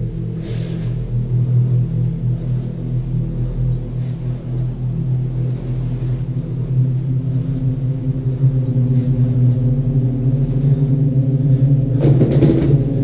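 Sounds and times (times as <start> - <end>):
ominous ambient drone music: 0.0 - 13.0.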